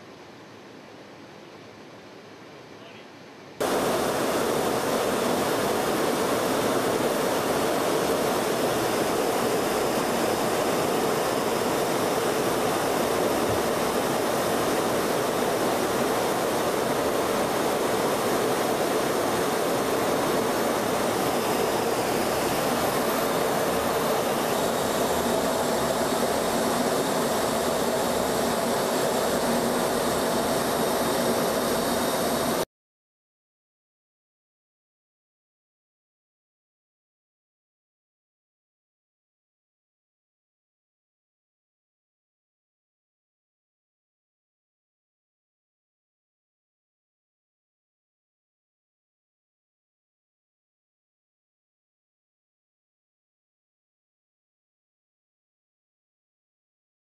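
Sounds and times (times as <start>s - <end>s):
jet engine rushing: 3.6s - 32.6s.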